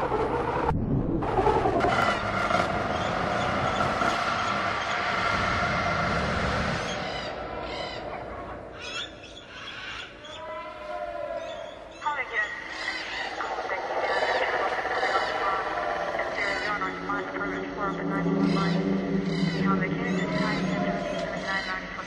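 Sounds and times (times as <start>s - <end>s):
steady rushing roar: 0.0s - 8.8s, 12.5s - 22.0s
flock of birds calling: 6.8s - 22.0s.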